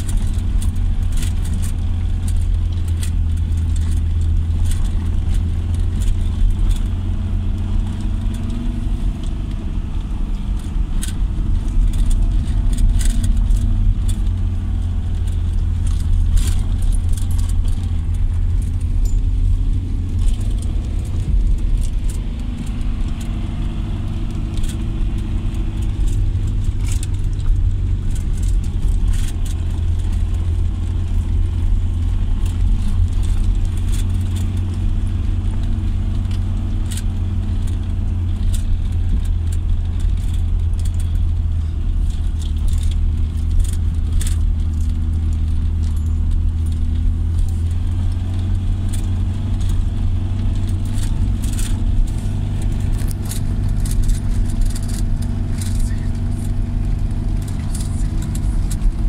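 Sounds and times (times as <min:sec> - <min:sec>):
car engine drone: 0:00.0 - 0:59.0
interior rattles and knocks: 0:10.4 - 0:35.8.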